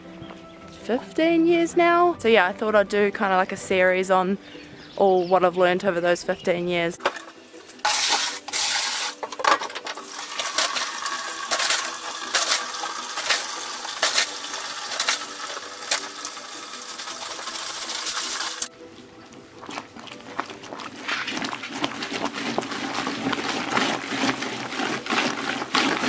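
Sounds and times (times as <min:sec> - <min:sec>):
hot water pouring into plastic bucket: 0:07.0 - 0:18.7, 0:21.0 - 0:26.0.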